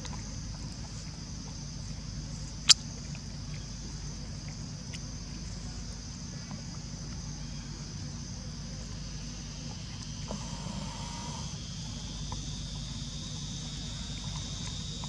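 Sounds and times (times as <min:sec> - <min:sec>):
low hum: 0:00.0 - 0:15.0
high-pitched hiss: 0:10.2 - 0:12.2.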